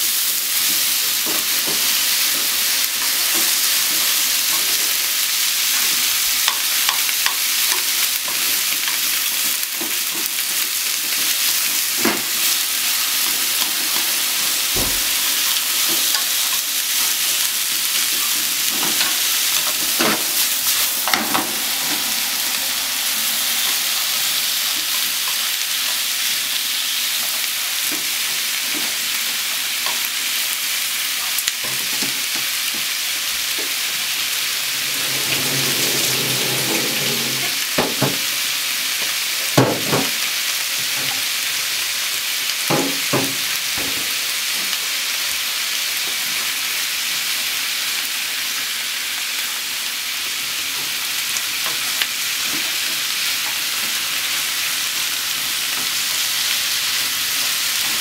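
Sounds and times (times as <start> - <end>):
onions sizzling in a frying pan: 0.0 - 58.0
wooden utensil scraping a pan: 15.7 - 25.9, 33.6 - 38.3.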